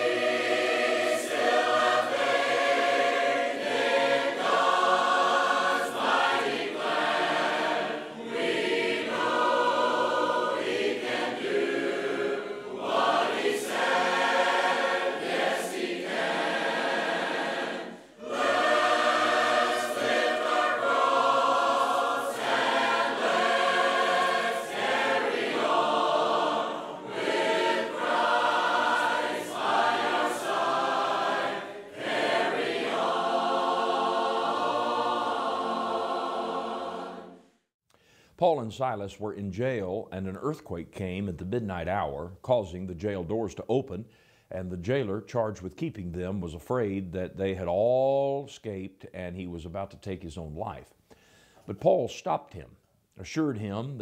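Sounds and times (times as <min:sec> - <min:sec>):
congregation singing a hymn: 0:00.0 - 0:37.6.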